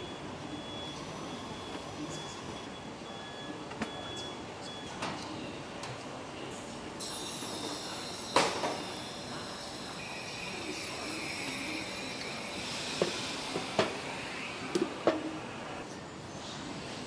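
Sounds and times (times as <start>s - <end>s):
machinery hiss and hum: 6.4s - 15.9s
high machine whine: 7.0s - 15.8s.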